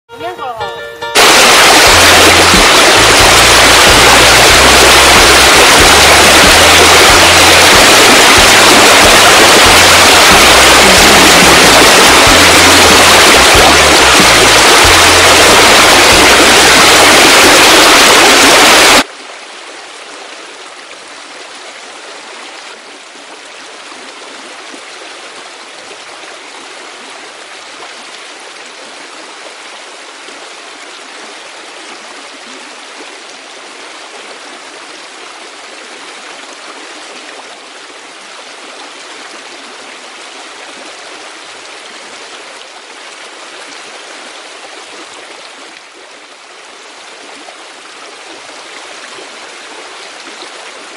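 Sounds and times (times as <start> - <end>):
loud music: 0.1 - 19.0
running water: 0.1 - 50.9.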